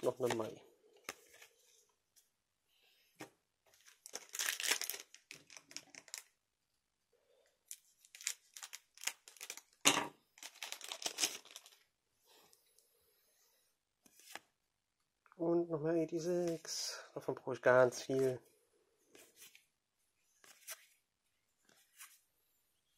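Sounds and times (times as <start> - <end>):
wrapper crinkling and tearing: 3.8 - 6.4, 7.7 - 9.8, 10.4 - 11.9.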